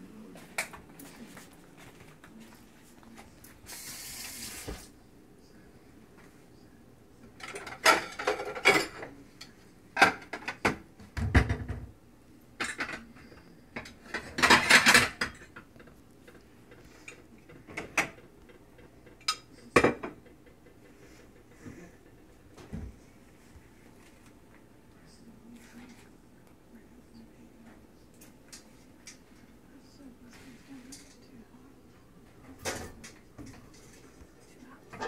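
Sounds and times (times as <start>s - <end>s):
dishes and cutlery clattering: 7.4s - 11.9s, 12.6s - 20.8s.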